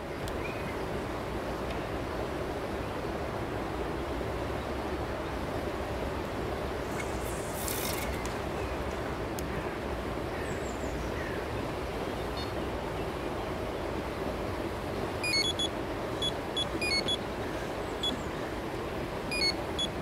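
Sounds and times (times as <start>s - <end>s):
bite alarm beeping: 15.2s - 17.2s, 19.3s - 20.0s.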